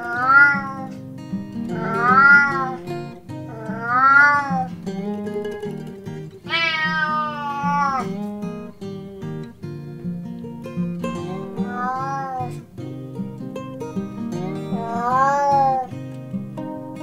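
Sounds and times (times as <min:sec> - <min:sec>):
cat meowing: 0:00.0 - 0:01.0, 0:01.7 - 0:04.8, 0:06.4 - 0:08.4, 0:11.3 - 0:12.6, 0:14.4 - 0:15.9
guitar music: 0:00.0 - 0:17.0.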